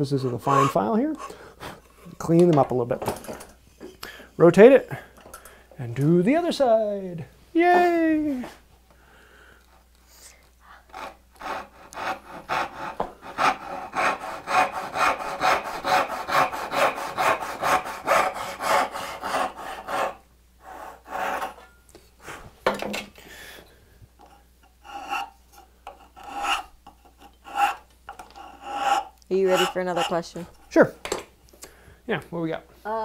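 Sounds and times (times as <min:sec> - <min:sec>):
backsaw cutting wood: 0:00.2 - 0:01.4, 0:10.9 - 0:21.6, 0:27.4 - 0:30.4
file strokes on wood: 0:10.9 - 0:21.6, 0:24.8 - 0:30.4.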